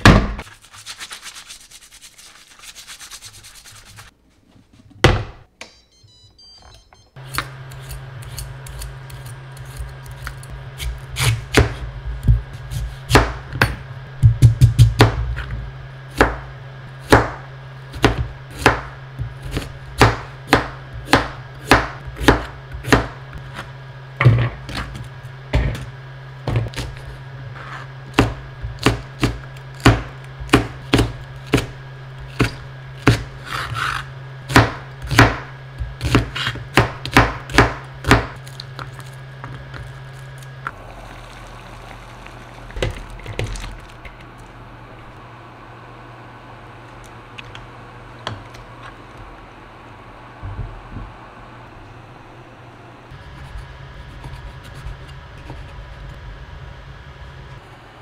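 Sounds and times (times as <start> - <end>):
steady low hum: 2.6 - 58.0
knife chopping on plastic board: 10.2 - 15.2, 17.0 - 24.8, 28.1 - 38.9.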